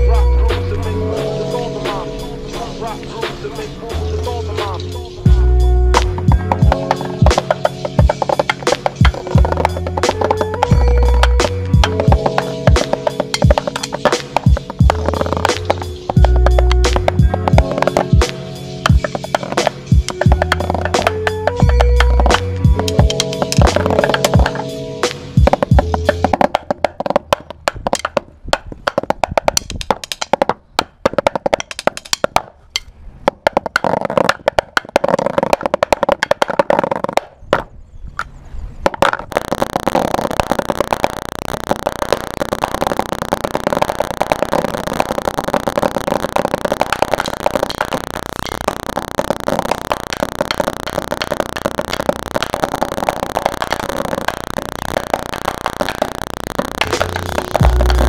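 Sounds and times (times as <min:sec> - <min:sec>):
drumsticks on practice pad: 0:06.0 - 0:37.3.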